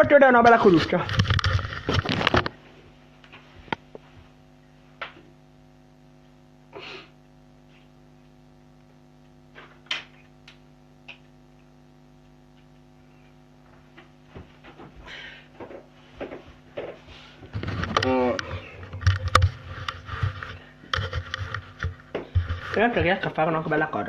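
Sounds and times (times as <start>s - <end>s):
electrical hum: 0.0s - 24.0s
clicks and knocks of objects: 1.0s - 2.6s, 15.6s - 22.8s.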